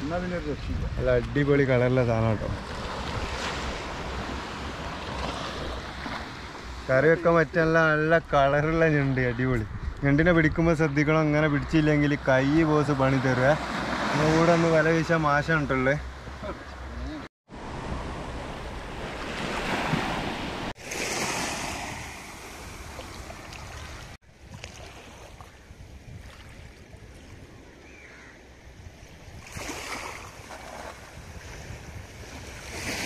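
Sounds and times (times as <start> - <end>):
wind buffeting microphone: 0.0 - 12.1, 28.6 - 33.0
small waves washing on shore: 2.0 - 7.5, 12.9 - 15.2, 16.3 - 28.3, 28.9 - 33.0.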